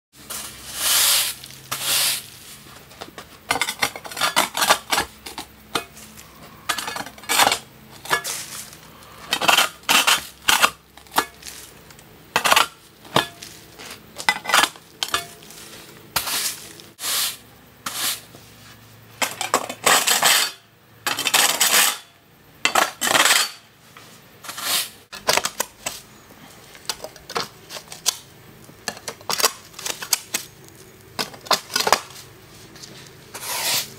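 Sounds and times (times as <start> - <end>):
push broom scraping concrete: 0.2 - 11.8, 12.4 - 18.8, 19.7 - 22.0, 24.4 - 25.1, 31.6 - 33.9.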